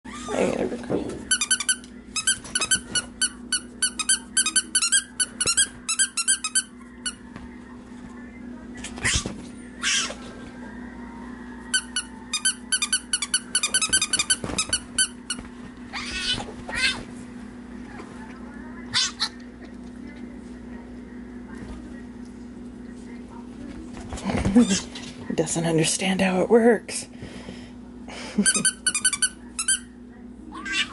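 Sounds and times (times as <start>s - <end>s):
dog toy squeaker squeaking: 1.3s - 3.0s.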